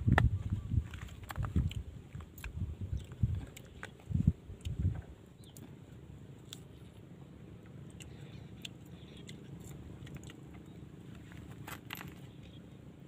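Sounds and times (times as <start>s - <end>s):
low background rumble: 0.0s - 13.0s
crisp clicks of fruit peeling: 6.4s - 7.1s.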